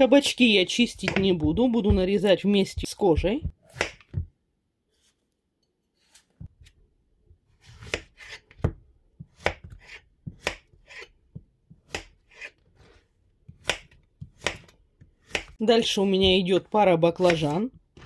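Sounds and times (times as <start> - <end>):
knife chopping on cutting board: 0.9 - 4.3, 7.6 - 12.5, 13.5 - 16.6.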